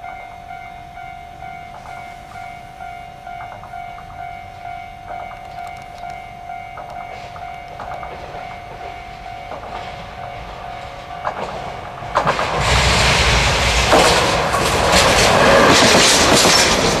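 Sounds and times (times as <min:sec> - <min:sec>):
level crossing bell ringing: 0:00.0 - 0:12.0
locomotive wheels clicking on rails: 0:00.0 - 0:17.0.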